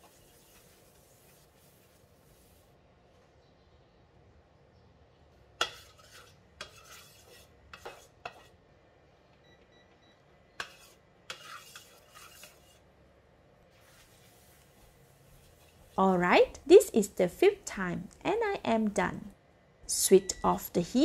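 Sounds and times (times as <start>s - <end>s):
scrape in a wok: 0.0s - 2.7s, 5.6s - 8.6s, 10.6s - 12.9s, 13.7s - 16.0s.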